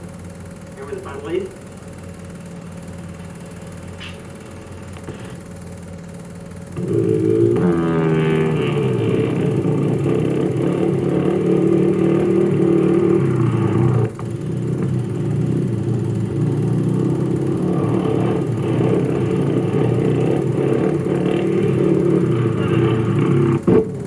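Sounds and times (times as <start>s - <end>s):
motorbike engines revving: 6.5s - 24.0s.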